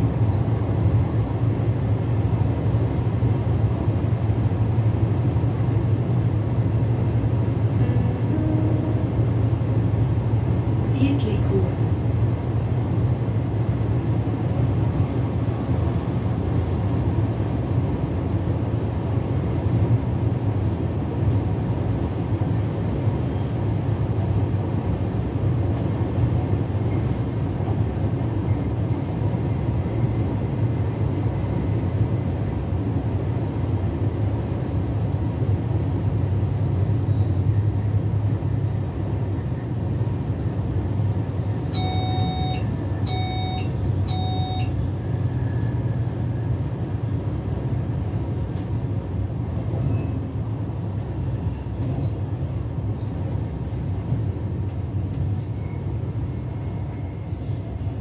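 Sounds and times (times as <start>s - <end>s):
train running rumble: 0.0s - 58.0s
short electronic beeps: 41.8s - 44.8s.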